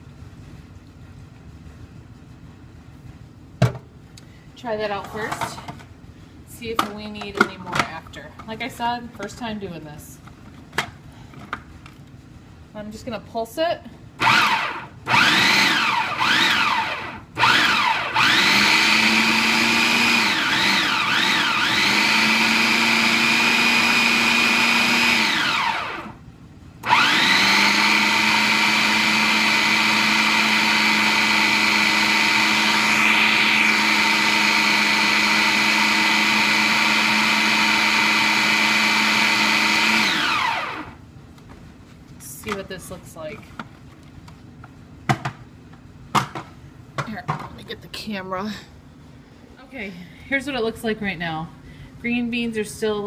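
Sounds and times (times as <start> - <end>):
food processor motor chopping: 14.2 - 26.2, 26.8 - 41.0.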